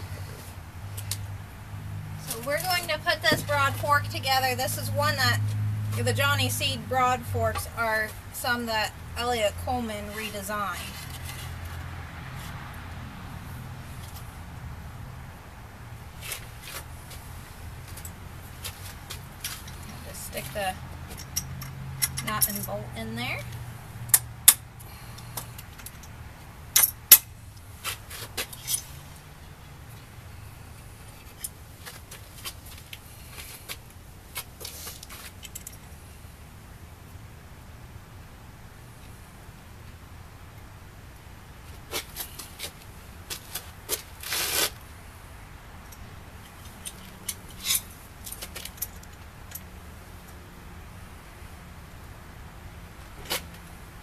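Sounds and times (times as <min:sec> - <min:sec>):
wrench clicking on metal bolt: 0:21.2 - 0:22.7, 0:26.8 - 0:27.3.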